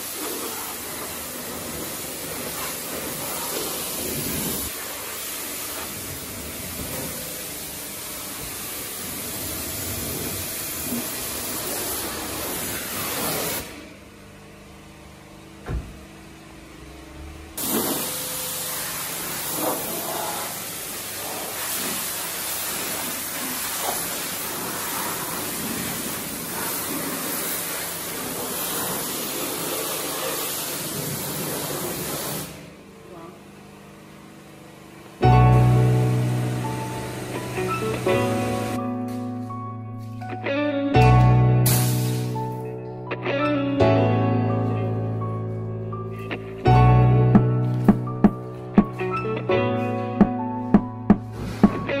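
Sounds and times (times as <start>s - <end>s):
pressure washer spraying water: 0.0s - 13.8s, 17.6s - 32.6s, 35.8s - 38.9s, 41.7s - 42.5s
knock: 50.2s - 51.9s.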